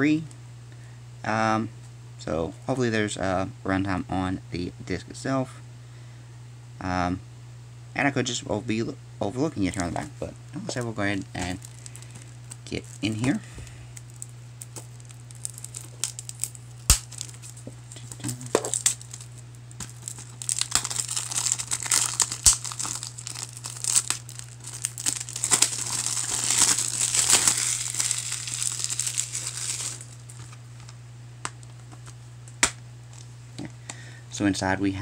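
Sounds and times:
plastic wrap crinkling: 9.7 - 32.2.

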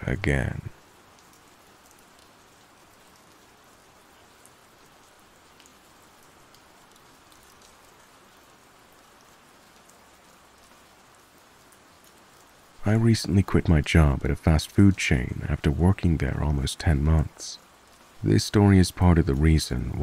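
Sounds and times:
rain patter: 0.0 - 20.0
single raindrops: 0.7 - 13.9.

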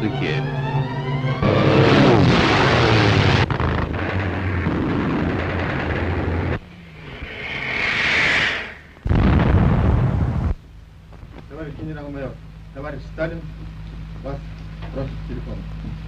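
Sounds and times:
aircraft engines droning: 0.0 - 9.1
rush of noise: 1.4 - 10.6
sudden loud blast: 1.4 - 10.6.

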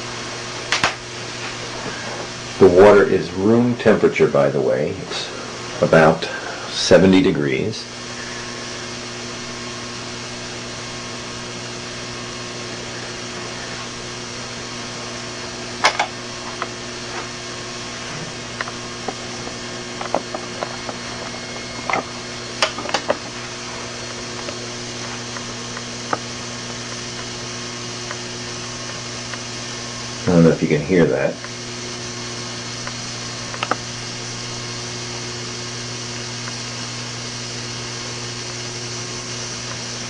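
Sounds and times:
steady electrical hum: 0.0 - 40.0
small clicks and pops: 32.8 - 33.8.

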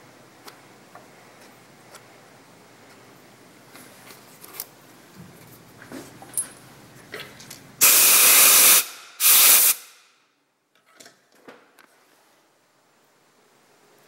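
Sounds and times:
compressed air blasts: 7.8 - 10.2.

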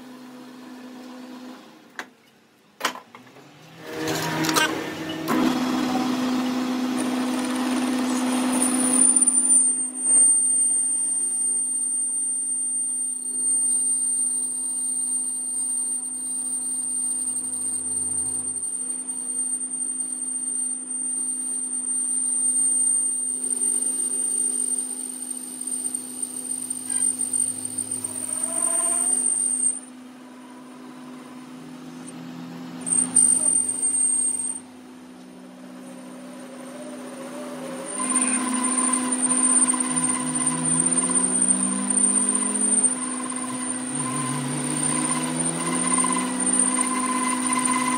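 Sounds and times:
lathe motor hum: 3.8 - 11.3, 21.8 - 47.9
high thin cutting whine: 3.8 - 47.9.

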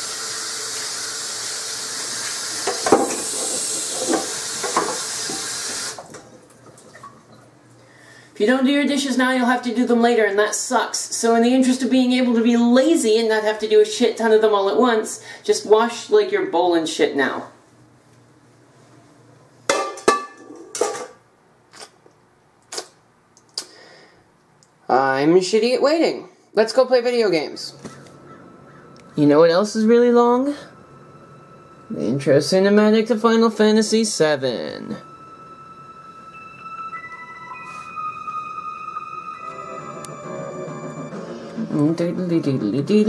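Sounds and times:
tap water running into a sink: 0.0 - 7.2
dishes knocking in a sink: 2.6 - 5.5, 19.7 - 21.1.

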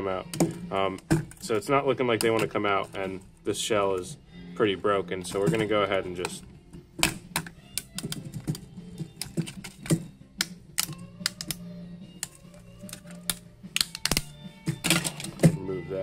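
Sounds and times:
plastic clicks and snaps: 7.0 - 8.6, 9.2 - 15.5.

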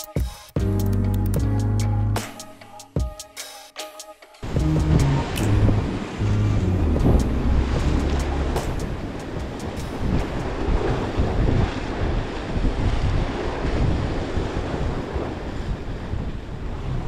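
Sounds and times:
sea waves washing against rocks: 4.4 - 17.0
wind buffeting microphone: 4.4 - 17.0.

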